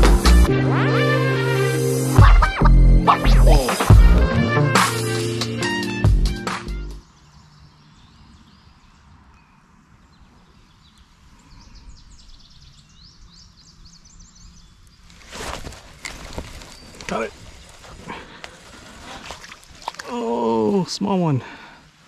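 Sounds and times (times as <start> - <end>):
small birds chirping: 7.0 - 21.3.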